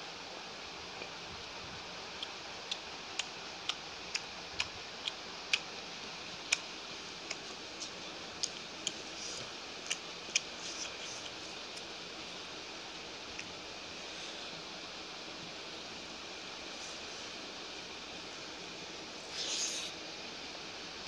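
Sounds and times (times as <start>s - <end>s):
steady hiss: 0.0s - 21.0s
fingers mixing food on a plate: 7.2s - 11.9s.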